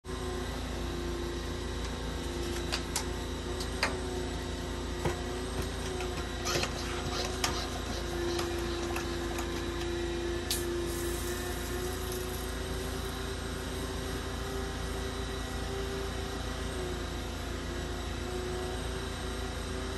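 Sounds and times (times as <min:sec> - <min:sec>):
machine hum with held tone: 0:00.0 - 0:19.9.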